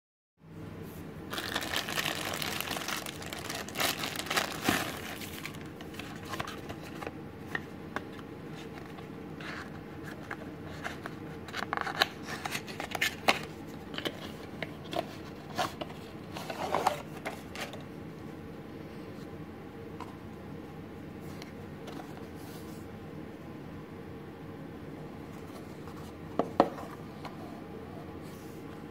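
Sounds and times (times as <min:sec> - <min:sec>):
plastic wrapping crinkling: 0:01.3 - 0:07.0.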